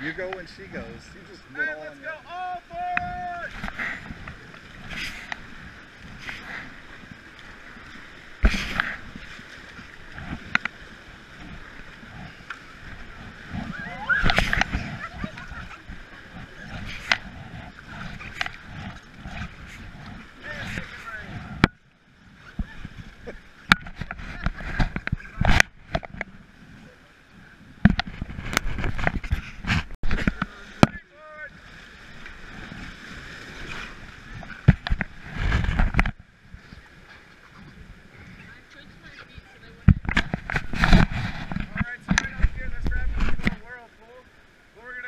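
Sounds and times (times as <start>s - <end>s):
whitewater rushing: 0.0s - 26.0s
paddles stroking water: 0.0s - 45.0s
thump and splash: 8.4s - 9.0s, 13.5s - 15.7s, 33.6s - 36.2s, 39.8s - 43.7s.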